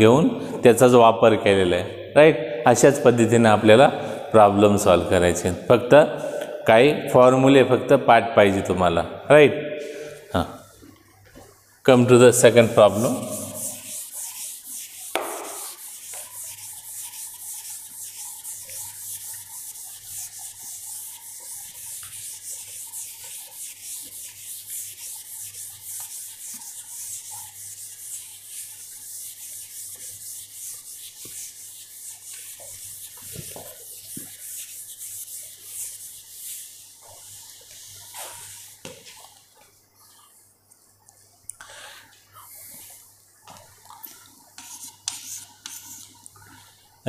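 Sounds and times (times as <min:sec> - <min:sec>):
duster rubbing on chalkboard: 0:12.3 - 0:39.3, 0:44.5 - 0:46.6
sharp knock: 0:15.1 - 0:15.7.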